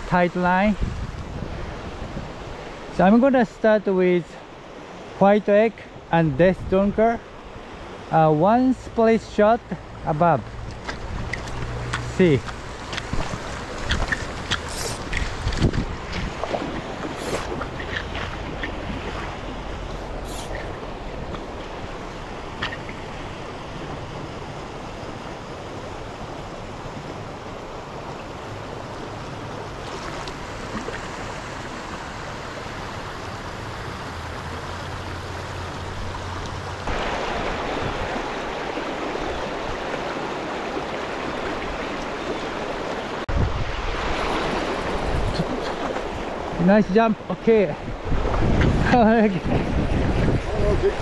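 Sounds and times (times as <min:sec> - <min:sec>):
creek rushing over rocks: 0:00.1 - 0:51.0
wind on microphone: 0:00.6 - 0:02.8, 0:10.8 - 0:22.7, 0:36.9 - 0:40.0, 0:43.3 - 0:46.6, 0:47.8 - 0:51.0.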